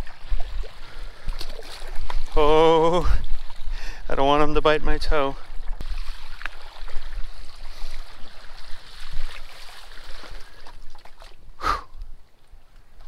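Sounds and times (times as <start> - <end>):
water splashing from paddle strokes: 0.0 - 3.8, 5.1 - 11.4.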